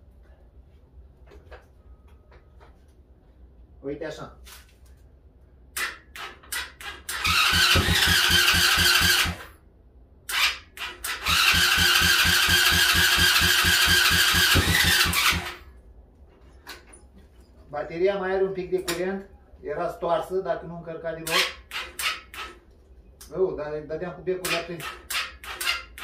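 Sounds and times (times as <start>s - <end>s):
starter motor cranking engine: 6.1s - 9.5s, 10.3s - 15.7s.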